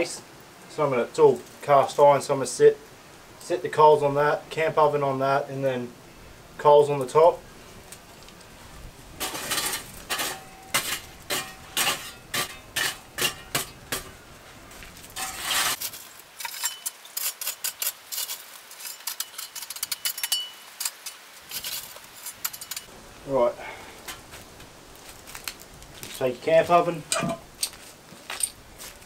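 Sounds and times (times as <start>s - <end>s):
metal shovel scraping coals: 7.0s - 22.9s, 23.6s - 29.0s
coals clinking on iron: 9.2s - 22.9s, 24.0s - 29.0s.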